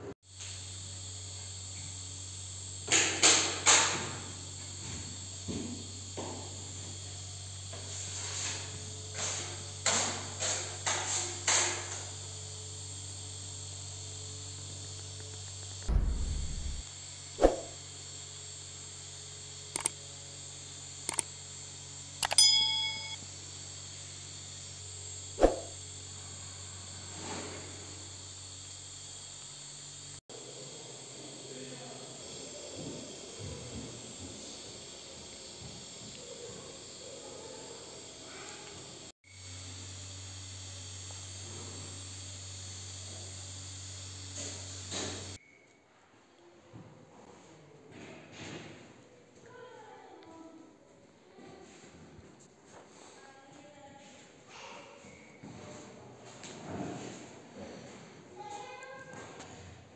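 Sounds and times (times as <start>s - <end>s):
thin high whine: 0.3s - 45.9s
steady low hum: 12.1s - 37.6s
low hum: 15.9s - 17.8s
light ringing clink: 22.2s - 23.2s.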